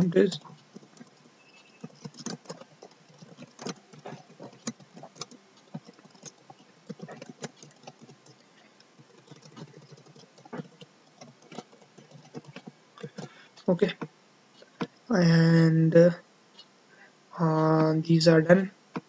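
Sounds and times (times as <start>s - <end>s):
keyboard typing: 0.0s - 14.1s.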